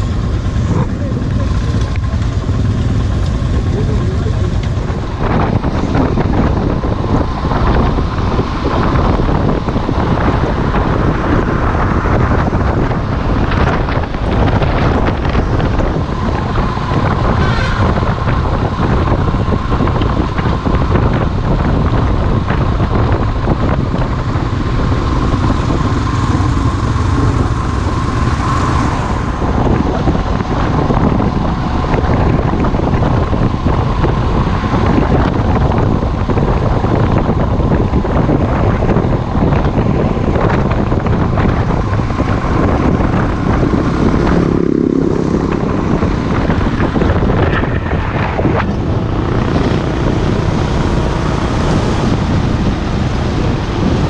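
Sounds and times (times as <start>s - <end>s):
motorcycle engine running: 0.0s - 54.0s
wind rushing over microphone: 0.0s - 54.0s.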